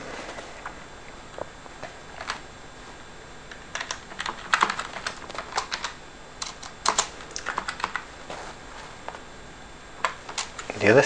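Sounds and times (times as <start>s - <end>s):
typing on computer keyboard: 3.7s - 8.0s.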